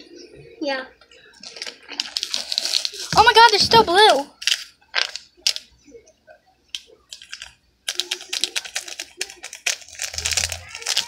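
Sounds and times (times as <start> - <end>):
plastic bag crinkling: 1.4 - 5.7, 7.1 - 11.0.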